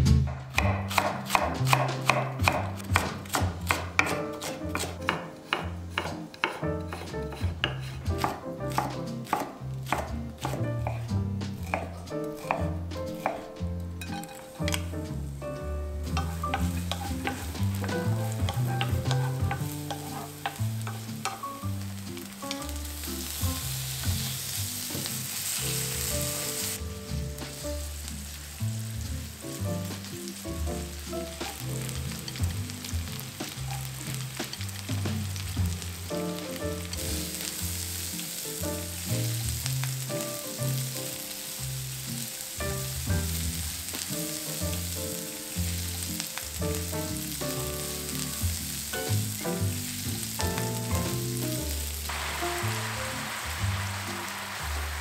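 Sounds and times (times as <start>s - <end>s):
wooden spatula stirring in pan: 0.6s - 15.4s, 16.0s - 30.4s, 31.0s - 40.1s
food sizzling in oil: 0.6s - 55.0s.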